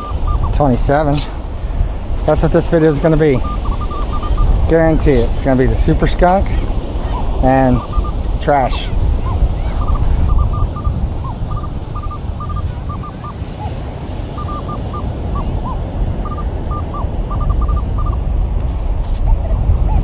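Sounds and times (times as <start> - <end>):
metal detector beeping: 0.0 - 1.3, 2.3 - 5.9, 7.2 - 8.9, 9.7 - 13.4, 14.4 - 18.2
wind: 0.0 - 20.0.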